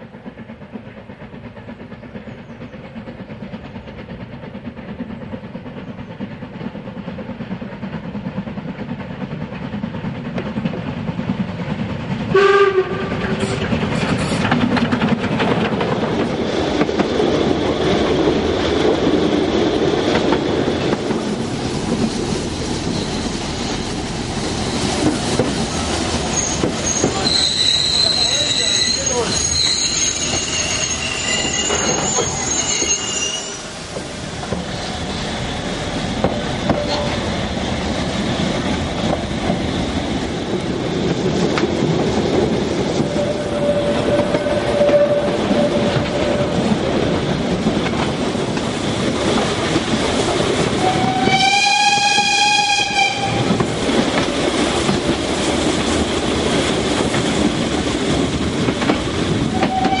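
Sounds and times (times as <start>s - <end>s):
train wheels rolling and rattling: 0.0s - 60.0s
steam whistle: 12.3s - 13.1s, 43.1s - 46.4s, 50.8s - 53.5s, 59.5s - 60.0s
wheel squeal: 22.8s - 24.0s, 26.2s - 33.7s, 43.1s - 46.5s.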